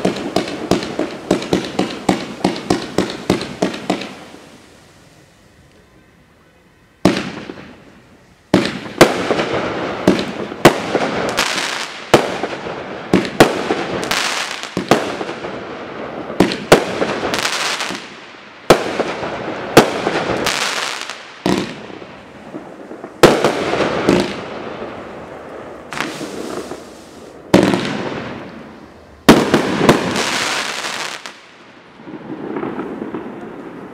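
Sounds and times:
firework bangs with crackle: 0.0s - 5.1s, 7.0s - 7.9s, 8.5s - 33.9s.

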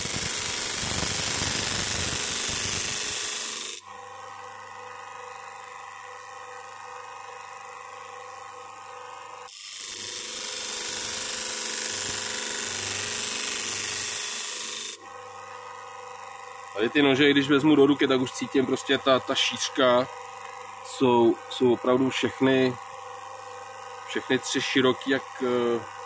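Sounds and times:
blade on grinding wheel hissing: 0.0s - 3.8s, 9.5s - 15.0s
bench grinder motor hum: 0.0s - 26.0s.

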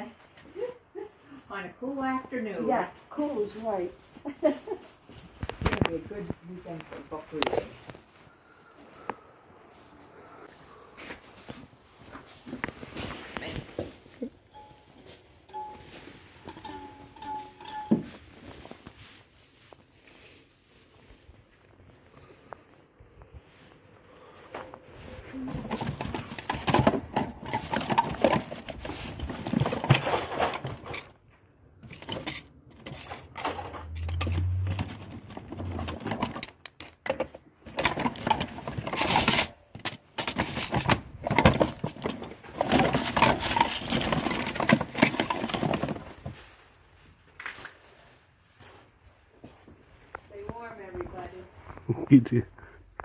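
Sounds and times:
paper bag rustling: 23.5s - 31.2s, 32.9s - 36.5s, 37.6s - 51.5s.

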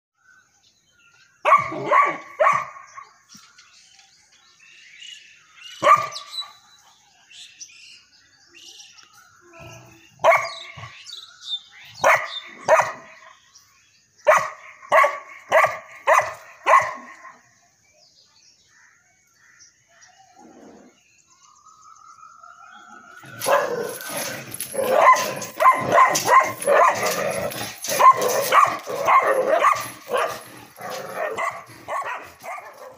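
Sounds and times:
puppy barking: 1.5s - 2.8s, 5.8s - 6.2s, 10.2s - 10.6s, 12.0s - 13.1s, 14.3s - 17.1s, 23.4s - 24.1s, 24.7s - 32.9s.

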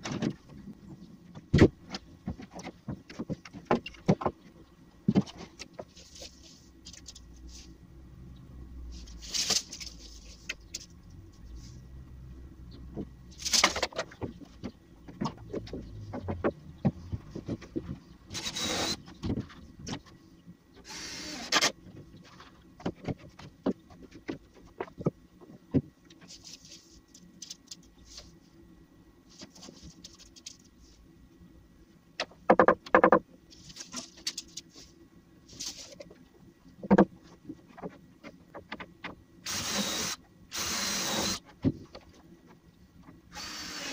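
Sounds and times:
wooden panels knocking: 32.4s - 33.3s.

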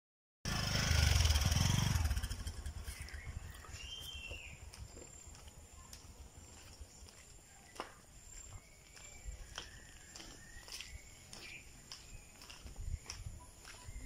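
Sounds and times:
vehicle engine: 0.5s - 5.0s
footsteps on dirt path: 2.8s - 14.0s.

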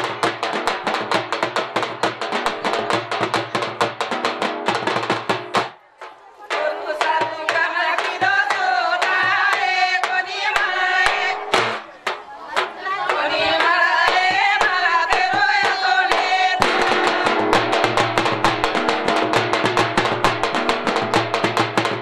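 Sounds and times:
fast drumming: 0.0s - 22.0s
rhythmic handclaps: 0.0s - 22.0s
women singing together: 5.8s - 18.4s.

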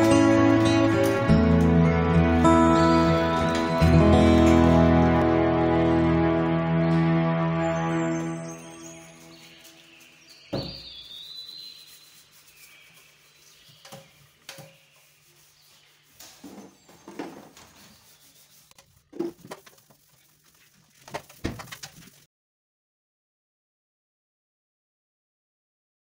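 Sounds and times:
brush scrubbing steel sink: 9.1s - 22.2s.

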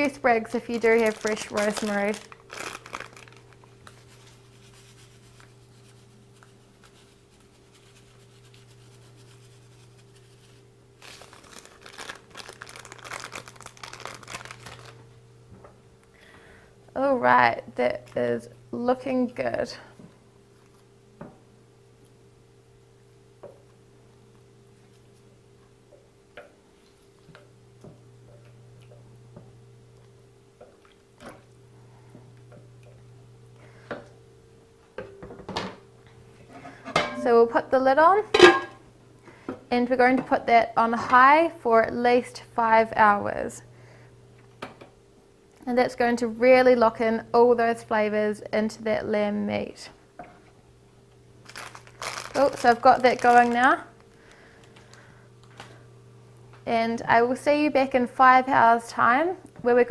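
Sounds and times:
plastic bag crinkling: 0.0s - 5.6s, 6.8s - 15.2s, 51.4s - 55.8s
faint steady hum: 0.0s - 59.9s.

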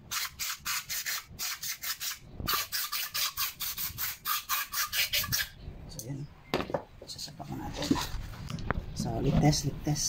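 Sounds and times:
rhythmic hand scraping on metal: 0.2s - 5.6s.

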